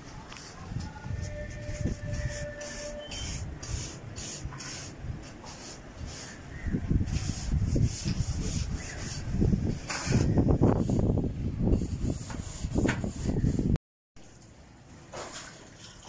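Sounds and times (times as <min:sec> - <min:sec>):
grit scraping on concrete floor: 0:00.3 - 0:11.1.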